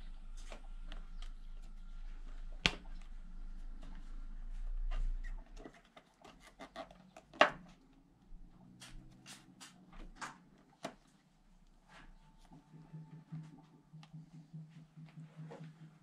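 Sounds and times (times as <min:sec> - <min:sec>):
clicks and rubs of plastic parts: 0:04.9 - 0:07.8.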